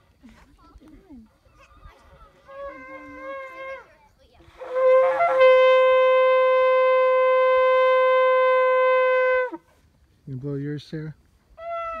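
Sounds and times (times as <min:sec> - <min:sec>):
shofar blast: 0:04.5 - 0:09.6, 0:11.6 - 0:12.0.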